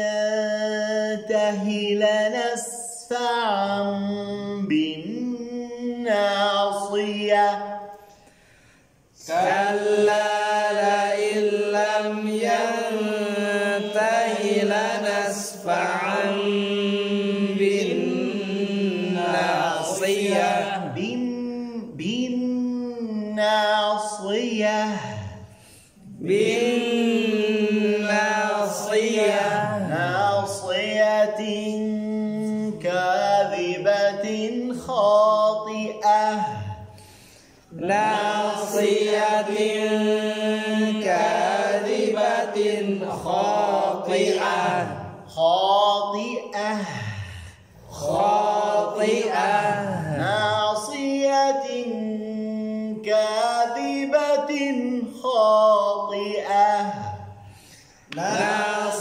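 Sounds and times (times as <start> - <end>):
man chanting: 0.0 - 7.9, 19.7 - 36.9, 37.7 - 57.4.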